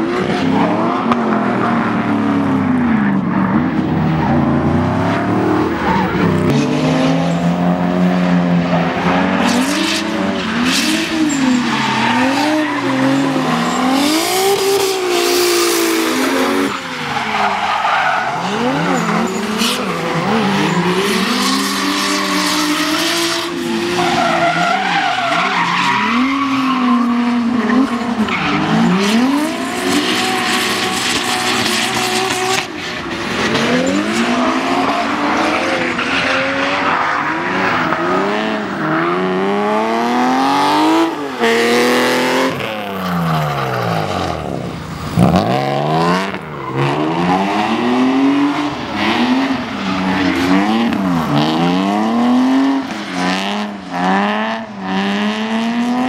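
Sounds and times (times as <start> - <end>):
car engines revving: 0.0 - 56.0
tyre squeal: 9.9 - 32.5.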